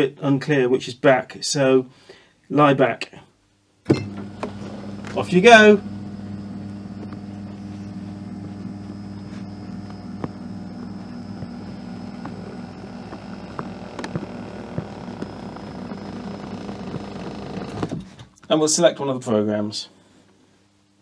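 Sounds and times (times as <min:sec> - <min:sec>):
massage chair motors humming: 0:03.9 - 0:18.1
small clicks and creaks: 0:09.8 - 0:18.5.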